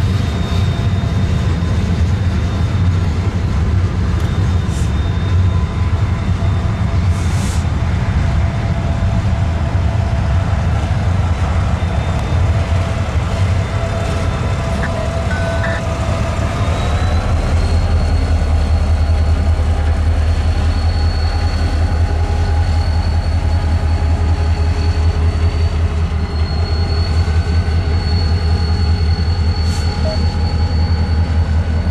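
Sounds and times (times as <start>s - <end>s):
diesel locomotive engine drone: 0.0s - 31.9s
high whine: 13.5s - 16.7s.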